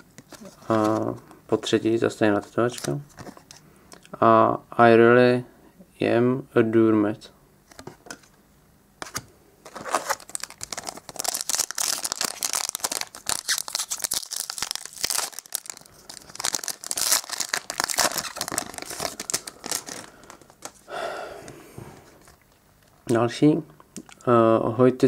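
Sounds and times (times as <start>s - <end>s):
foil wrapper tearing and crinkling: 9.7s - 20.8s.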